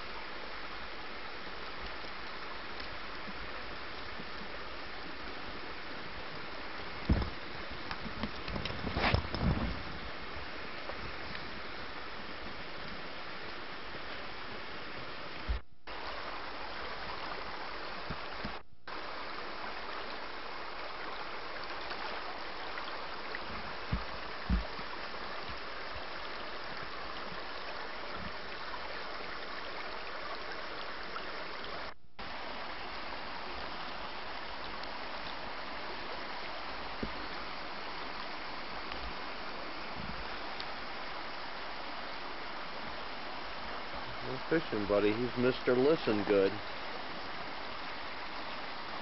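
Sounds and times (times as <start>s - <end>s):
stream water rushing: 0.0s - 49.0s
low bumps: 6.8s - 11.6s.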